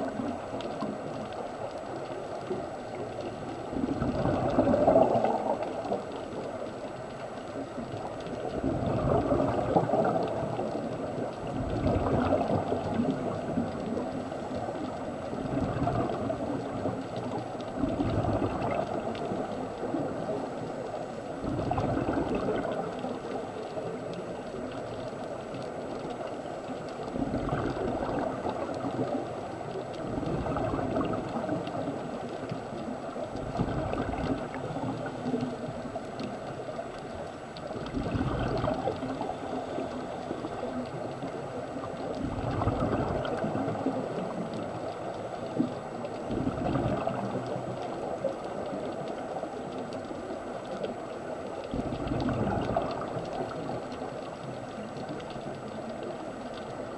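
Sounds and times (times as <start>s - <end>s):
low underwater rushing: 0.0s - 56.9s
bubbly underwater exhalations: 2.9s - 6.6s, 7.9s - 20.4s, 21.4s - 25.0s, 27.0s - 32.2s, 32.8s - 36.0s, 37.6s - 44.8s, 45.5s - 48.2s, 51.6s - 54.2s.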